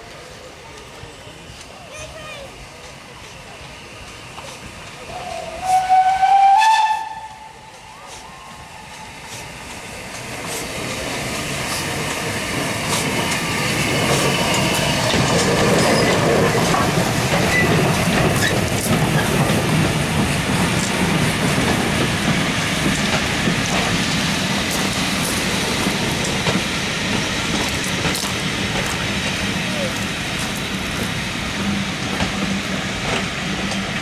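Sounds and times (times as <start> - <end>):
wheels clicking over rail joints: 7.2 - 34.0.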